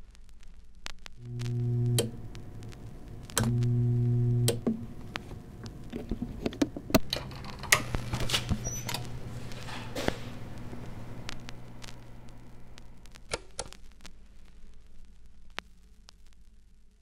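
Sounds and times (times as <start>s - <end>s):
low bass notes: 1.2s - 5.2s
scattered sharp clicks and knocks: 4.4s - 10.2s, 13.1s - 13.8s.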